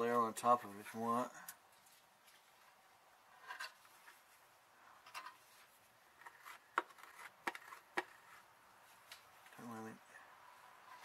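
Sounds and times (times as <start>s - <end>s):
hand tool scraping and tapping: 5.1s - 8.4s.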